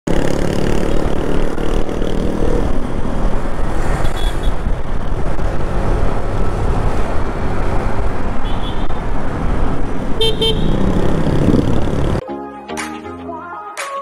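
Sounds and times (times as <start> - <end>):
road rumble: 0.1 - 12.2
wind noise on microphone: 2.2 - 12.2.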